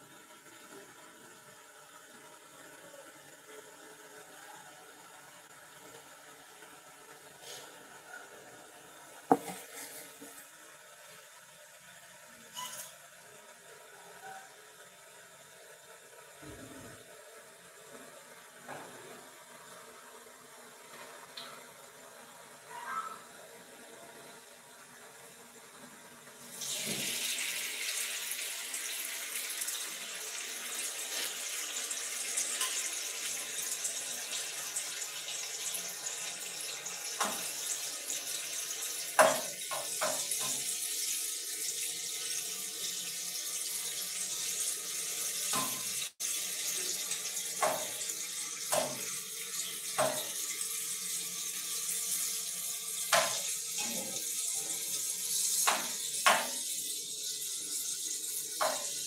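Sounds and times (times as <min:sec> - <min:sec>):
food sizzling in frying pan: 0:00.0 - 0:59.0
spatula scraping pan: 0:09.3 - 0:10.4.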